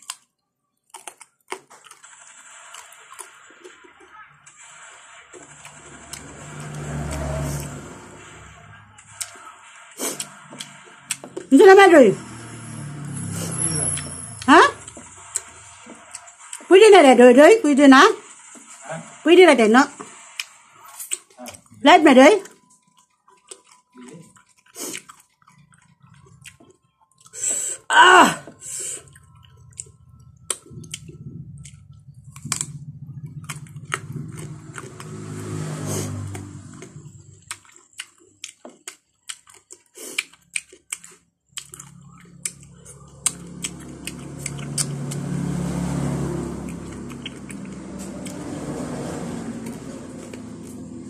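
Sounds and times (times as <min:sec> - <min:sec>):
chewing and lip-smacking: 0:00.0 - 0:02.2, 0:20.4 - 0:21.8, 0:22.4 - 0:27.4, 0:29.0 - 0:35.1, 0:36.8 - 0:45.3, 0:46.8 - 0:48.4.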